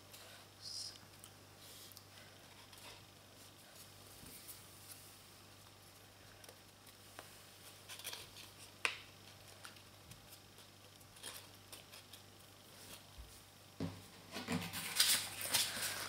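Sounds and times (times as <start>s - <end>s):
low steady hum: 0.0s - 16.0s
paper rustling and crinkling: 14.3s - 16.0s.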